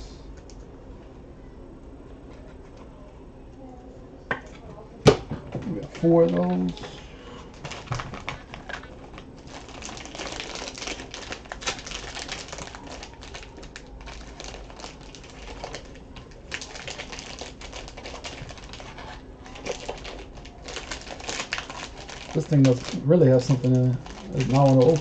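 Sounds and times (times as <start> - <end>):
plastic wrappers crinkling and tearing: 5.6 - 25.0.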